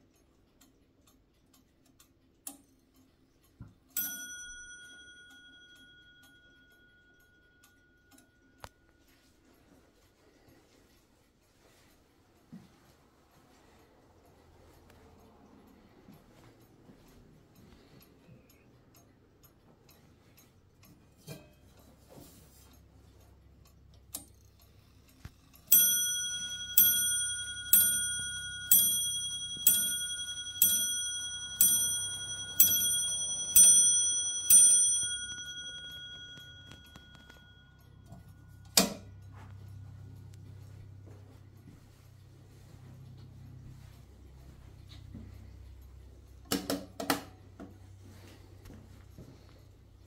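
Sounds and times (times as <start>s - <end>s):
clock mechanism clicks: 0.0s - 8.8s, 14.2s - 39.7s
clock bell striking: 4.0s - 8.7s, 25.7s - 40.0s.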